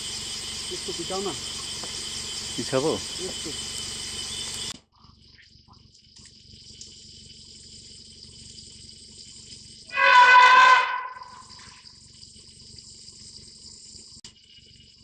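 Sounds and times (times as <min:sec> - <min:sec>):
high-pitched insect drone: 0:00.0 - 0:04.7, 0:06.6 - 0:15.0
elephant trumpeting: 0:09.9 - 0:11.6.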